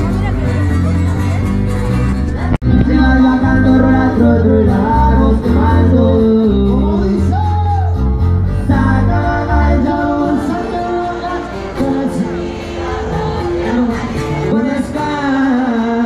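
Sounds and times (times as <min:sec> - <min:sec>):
deep sustained bass notes: 0:00.0 - 0:07.4
person singing over band: 0:02.3 - 0:07.9, 0:08.6 - 0:16.0.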